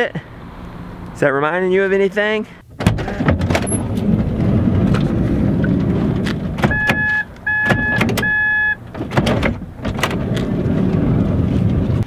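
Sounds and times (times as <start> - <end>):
electronic beeps: 6.7 - 8.8.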